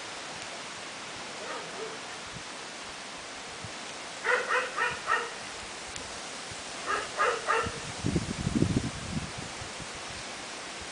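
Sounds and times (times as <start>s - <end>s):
wind and rain hissing: 0.0s - 10.9s
wind buffeting microphone: 6.4s - 10.9s.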